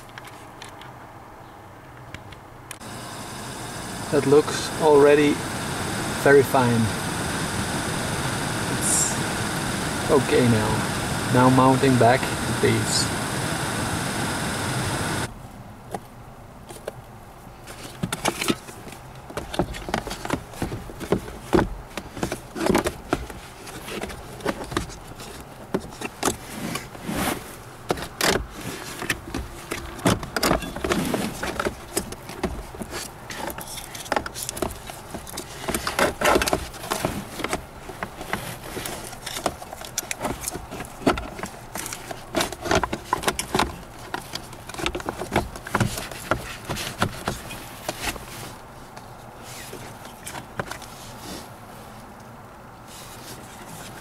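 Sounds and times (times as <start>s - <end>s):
plastic parts knocking and scraping: 17.7s - 51.1s.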